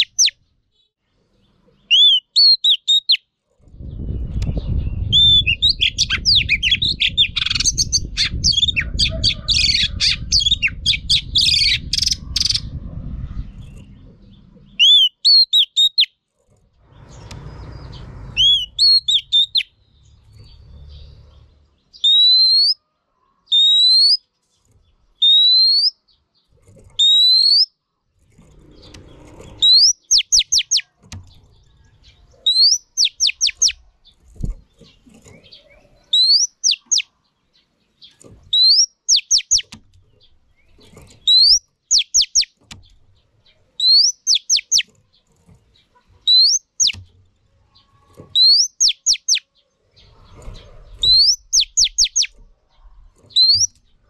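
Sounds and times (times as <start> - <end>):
bird calling: 0.0 - 0.4, 1.9 - 3.2, 14.6 - 16.1, 18.4 - 19.8, 22.0 - 22.8, 28.6 - 31.0, 32.3 - 33.8, 34.9 - 37.1, 38.5 - 39.7, 43.6 - 44.9, 45.9 - 47.1, 47.8 - 49.5, 50.2 - 53.8
low rumbling noise: 3.6 - 14.8, 16.7 - 21.8.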